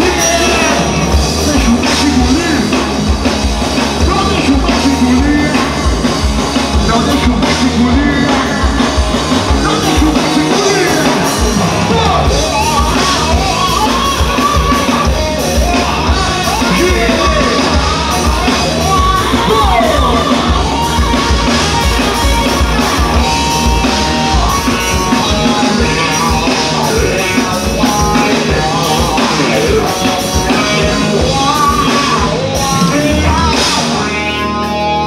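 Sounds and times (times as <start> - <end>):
man singing: 0.0 - 3.0, 4.0 - 35.0
bass guitar: 0.0 - 35.0
drums with steady beat: 0.0 - 35.0
electric guitar: 0.0 - 35.0.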